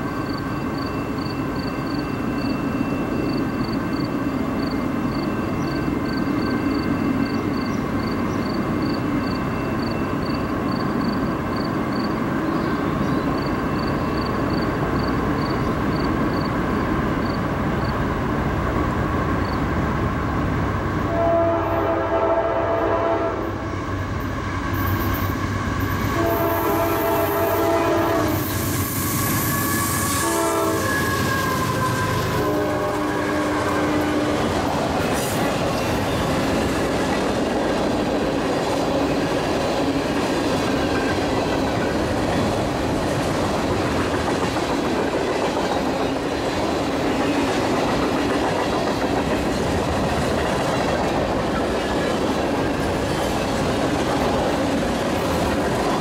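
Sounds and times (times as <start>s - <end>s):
freight train rumbling: 0.0s - 56.0s
train air horn blasts: 21.1s - 23.6s, 26.1s - 28.7s, 29.3s - 34.6s.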